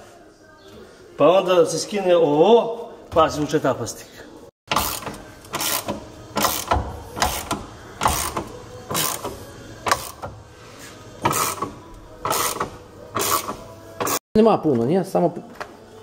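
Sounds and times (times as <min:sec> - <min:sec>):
ratchet wrench clicking: 0:04.7 - 0:10.2.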